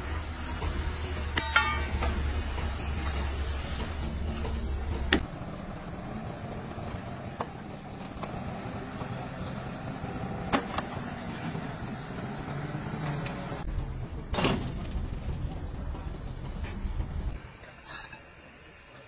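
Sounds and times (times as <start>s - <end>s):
diesel engine running: 0.0s - 14.0s
metallic clanks: 0.6s - 5.2s.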